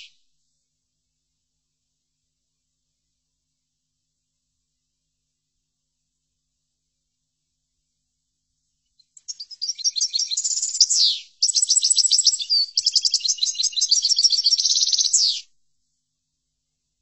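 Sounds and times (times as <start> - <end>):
goldfinch twittering song: 9.2 - 15.4.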